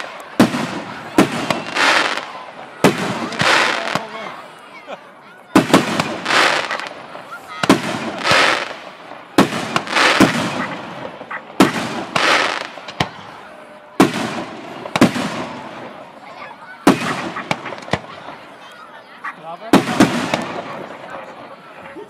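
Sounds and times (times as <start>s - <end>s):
firework shells bursting: 7.6s - 13.2s.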